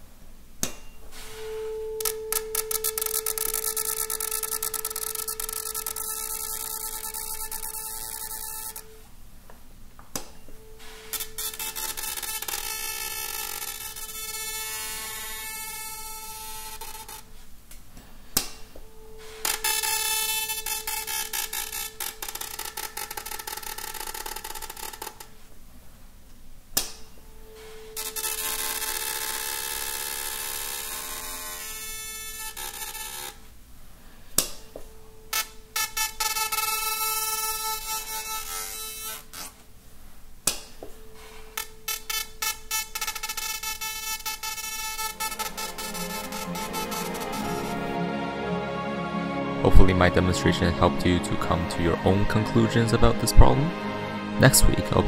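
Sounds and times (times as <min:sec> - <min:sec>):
tuning fork struck: 0:00.7 - 0:09.0, 0:18.6 - 0:24.4, 0:34.4 - 0:38.7
tuning fork ringing with paper rattle: 0:00.9 - 0:09.0, 0:10.4 - 0:17.4, 0:18.8 - 0:25.3, 0:27.1 - 0:33.4, 0:34.2 - 0:39.4, 0:40.9 - 0:47.9.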